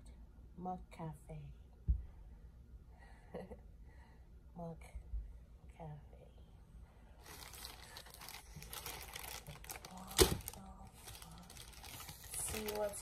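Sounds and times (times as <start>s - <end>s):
loud paper crackle: 7.2s - 13.0s
paper bag crinkling: 7.2s - 13.0s.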